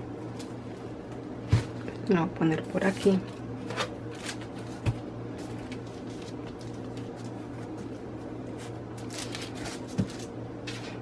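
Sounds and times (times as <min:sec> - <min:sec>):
steady low hum: 0:00.0 - 0:11.0
paper rustling: 0:02.9 - 0:11.0.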